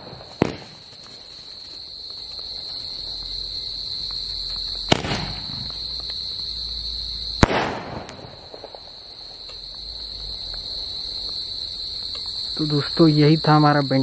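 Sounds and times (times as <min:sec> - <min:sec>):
firecracker bangs: 0:00.0 - 0:01.1, 0:04.8 - 0:05.8, 0:07.4 - 0:09.0
crickets chirping: 0:00.0 - 0:14.0.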